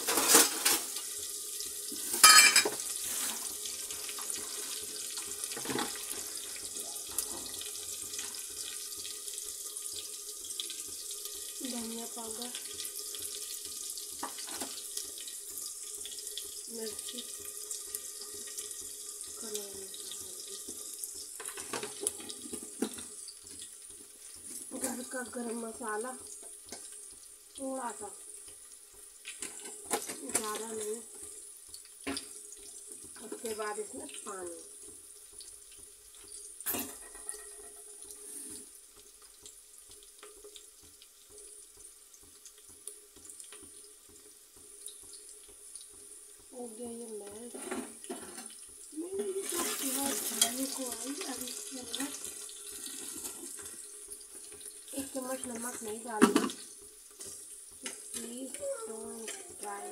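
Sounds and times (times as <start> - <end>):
onions sizzling in hot oil: 0.0 - 59.9.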